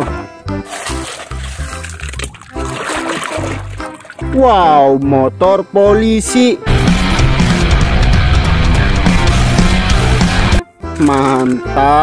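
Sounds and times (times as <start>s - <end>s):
heavy rock music: 6.6s - 10.6s.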